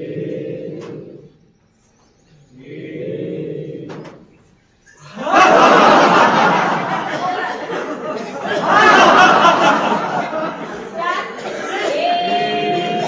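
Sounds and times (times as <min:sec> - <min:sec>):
voices chanting in held tones: 0:00.0 - 0:13.0
crowd noise with laughter: 0:05.0 - 0:13.0.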